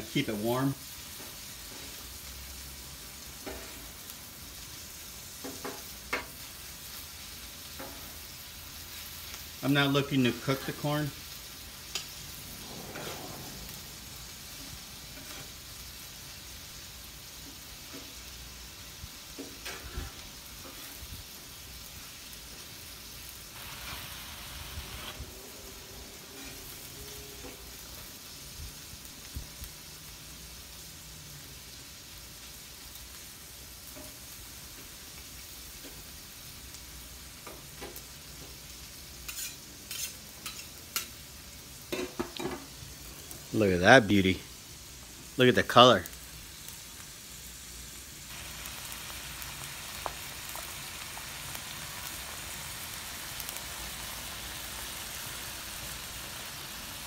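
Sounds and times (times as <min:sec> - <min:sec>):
food sizzling on a griddle: 0:00.0 - 0:57.0
spatulas scraping steel griddle: 0:12.0 - 0:15.7, 0:19.4 - 0:21.0, 0:26.0 - 0:27.6, 0:39.2 - 0:41.2.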